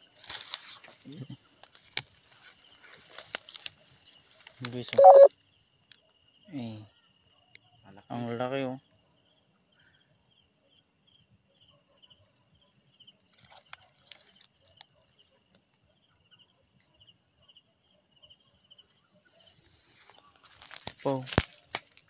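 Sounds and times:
cricket chirping: 0.0 - 22.0
high-pitched insect trill: 4.0 - 12.2.

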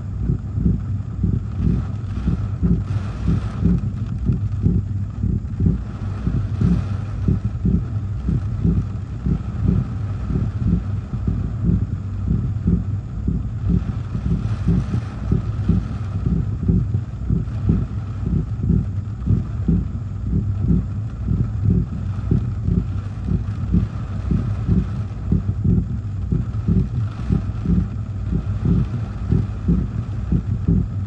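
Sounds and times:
car engine running: 0.0 - 31.0
wind and rain on car: 0.0 - 31.0
windshield wipers sweeping: 5.8 - 7.2, 13.4 - 16.2, 26.3 - 30.5.

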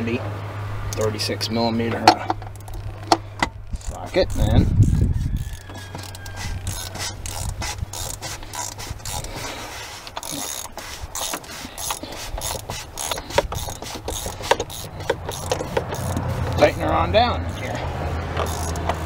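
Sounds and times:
hand ratchet clicking: 2.1 - 19.0.

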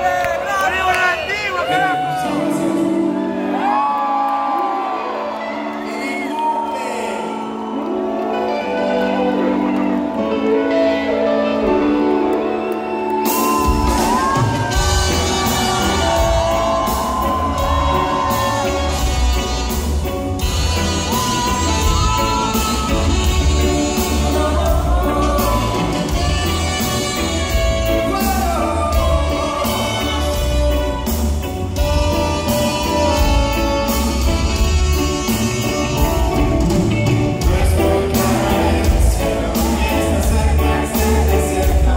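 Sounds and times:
audience shouting and whooping: 0.0 - 10.8, 11.4 - 31.2
person singing into microphone: 1.6 - 3.8, 21.0 - 26.6, 37.4 - 41.9
live reggae band playing: 4.8 - 41.9.

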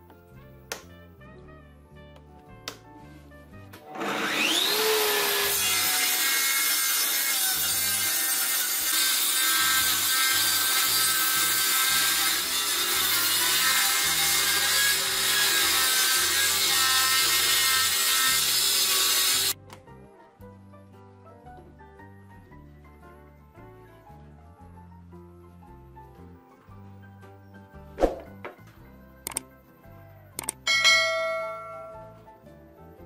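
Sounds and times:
saw cutting through wood: 3.8 - 19.6
table saw blade whine: 3.8 - 19.6.

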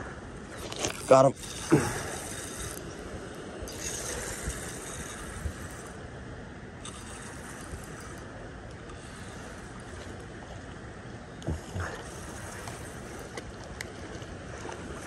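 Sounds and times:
fishing reel whirring: 0.6 - 6.1, 6.8 - 10.3, 11.6 - 13.4.

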